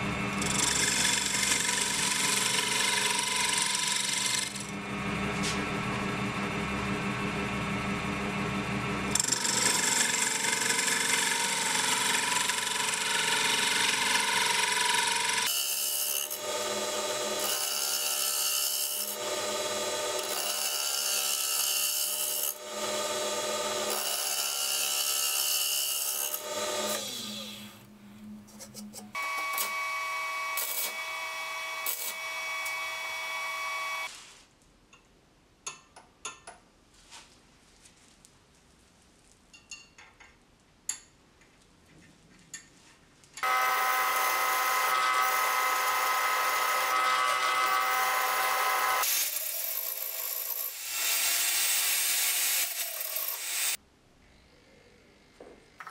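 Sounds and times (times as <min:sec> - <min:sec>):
lathe cutter scraping wood: 0:00.3 - 0:04.8, 0:09.1 - 0:27.7, 0:43.4 - 0:53.8.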